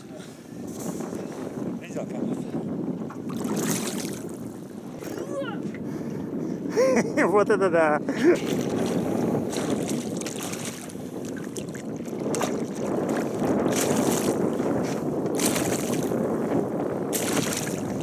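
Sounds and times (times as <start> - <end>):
wind noise on microphone: 0.0 - 18.0
fish splashing and thrashing in water: 3.3 - 4.4, 8.4 - 14.5, 15.3 - 16.2, 17.1 - 18.0.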